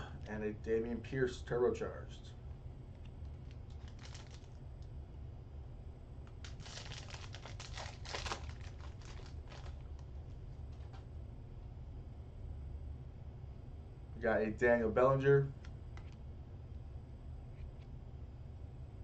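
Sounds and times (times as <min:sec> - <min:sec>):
low steady hum: 0:00.0 - 0:19.0
foil wrapper tearing and crinkling: 0:03.4 - 0:04.6, 0:06.4 - 0:10.1.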